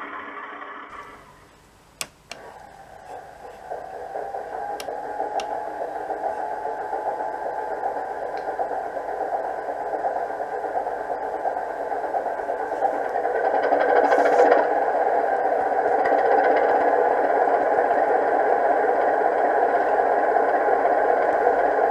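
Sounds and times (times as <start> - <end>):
sharp clicks: 1.9 - 3.8.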